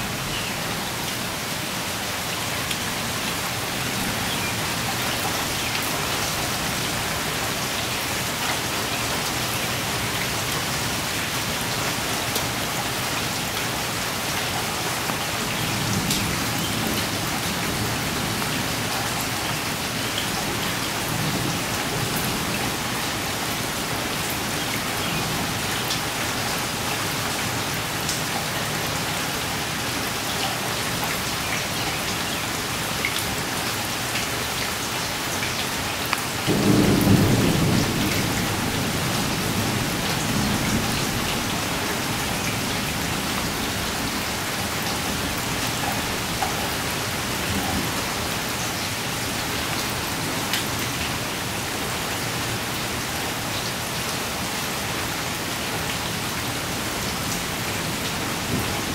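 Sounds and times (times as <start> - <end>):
heavy rain falling: 0.0 - 58.9
thunderclap with low rumble: 36.5 - 41.4.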